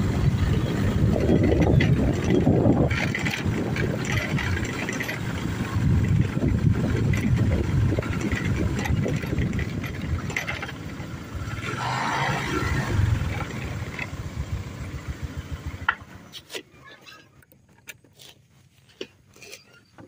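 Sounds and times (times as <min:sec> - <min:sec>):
wind rushing over microphone: 0:00.0 - 0:14.7
vehicle engine rumbling: 0:00.0 - 0:20.0.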